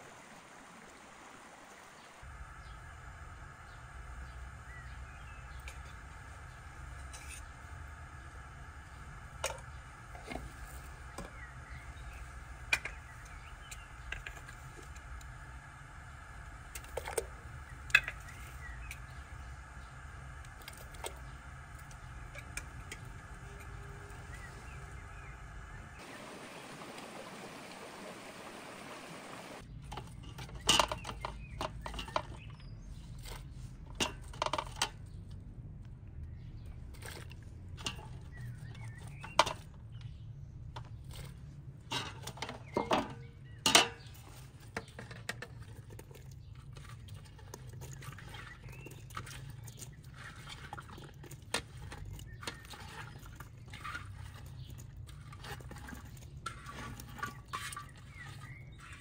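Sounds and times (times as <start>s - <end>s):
running stream water: 0.0s - 29.6s
metal pot clinks: 41.9s - 44.1s.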